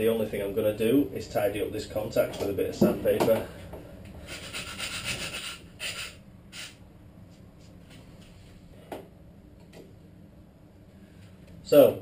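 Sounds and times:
sandpaper rubbing on metal: 4.3 - 6.8.

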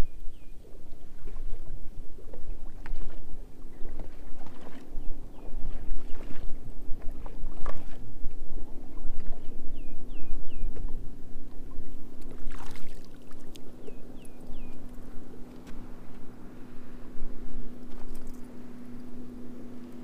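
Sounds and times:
steady low hum: 0.0 - 20.0
water lapping: 0.1 - 20.0
bird chirping: 13.8 - 14.9.

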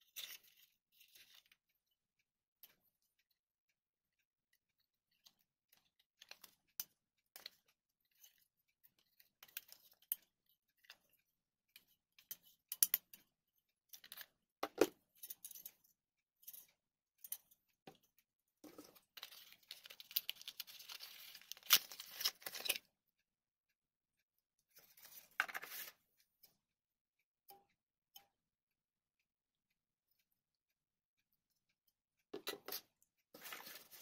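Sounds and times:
light clicks and taps: 0.0 - 23.0
packaging crinkling rustle: 19.2 - 22.8.

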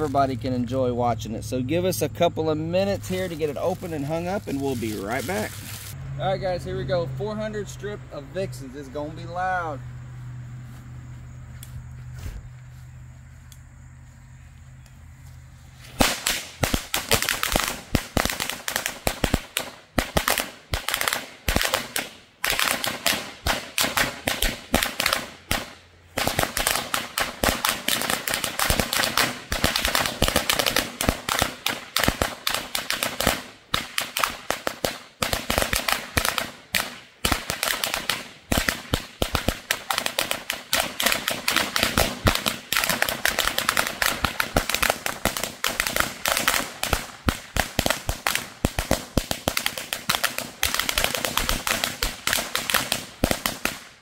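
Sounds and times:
firecrackers cracking rapidly: 3.0 - 6.0, 15.9 - 54.0.

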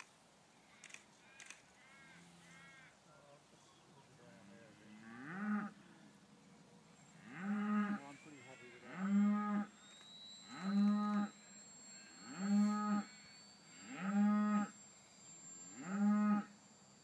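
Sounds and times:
cow mooing: 5.0 - 5.8, 7.2 - 9.7, 10.5 - 11.3, 12.2 - 13.1, 13.7 - 14.7, 15.7 - 16.5
faint high whine: 5.8 - 17.0.

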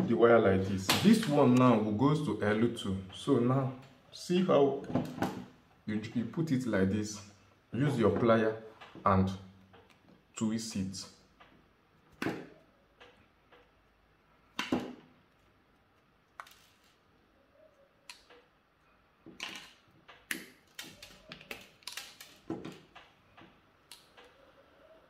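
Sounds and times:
pliers and wire clicking: 18.0 - 18.6, 19.3 - 24.4.

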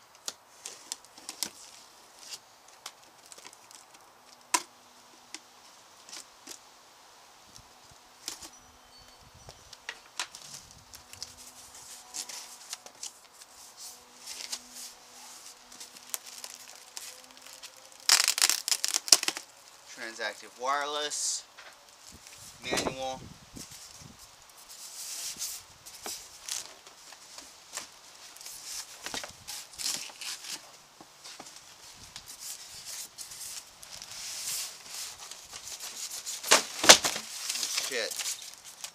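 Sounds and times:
paper and plastic rustling: 10.2 - 19.5, 23.6 - 38.9.

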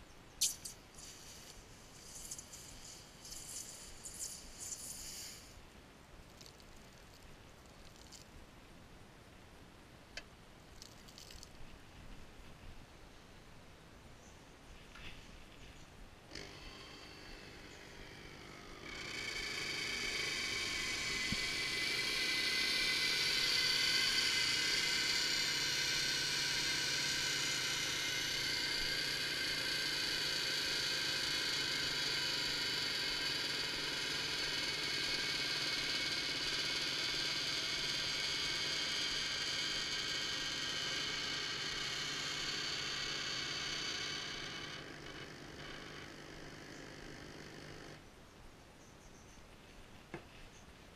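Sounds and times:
pipe bender motor whining: 16.3 - 48.0.

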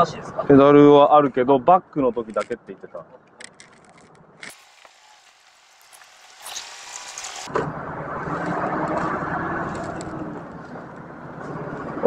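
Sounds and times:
diesel truck engine pulling away: 6.4 - 12.0.

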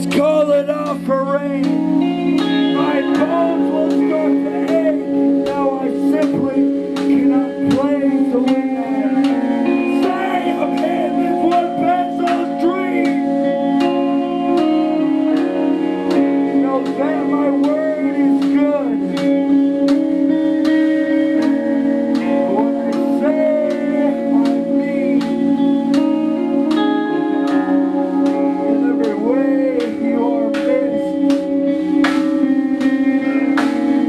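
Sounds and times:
bass guitar: 0.0 - 34.0
electric guitar: 0.0 - 34.0
person singing: 0.0 - 34.0
drum kit with cymbals: 28.3 - 34.0.

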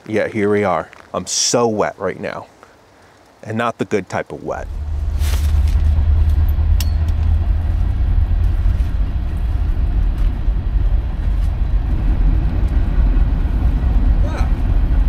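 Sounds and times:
faint rain hiss: 0.0 - 15.0
wind buffeting microphone: 4.6 - 15.0.

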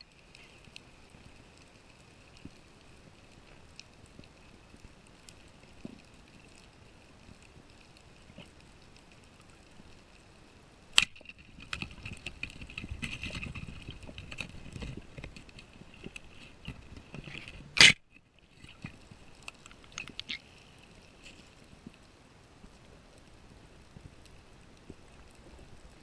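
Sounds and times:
spear scraping against rock: 11.0 - 18.0.

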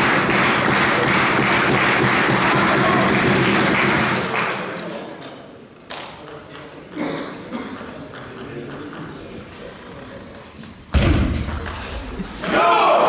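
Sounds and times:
applause: 0.0 - 5.0
crowd murmur: 6.3 - 10.8.

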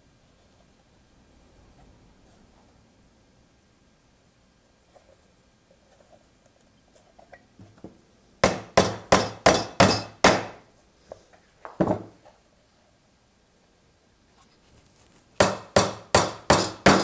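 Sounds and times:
hammer driving nails into wood: 8.4 - 10.6, 15.4 - 17.0.

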